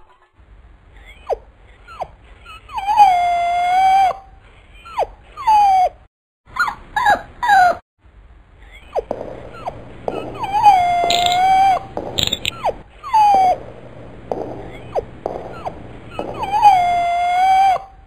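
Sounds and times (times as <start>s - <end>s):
cartoon dog whining: 1.1s - 7.8s, 8.8s - 13.6s, 14.8s - 18.0s
cartoon dog howling: 2.8s - 4.2s, 10.3s - 11.9s, 16.1s - 18.0s.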